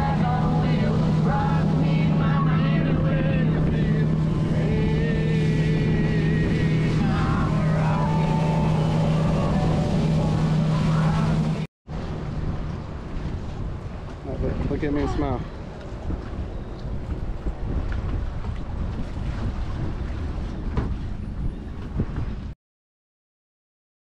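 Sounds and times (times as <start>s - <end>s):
motorboat engine running: 0.0s - 22.6s
wind and water rushing: 0.0s - 22.6s.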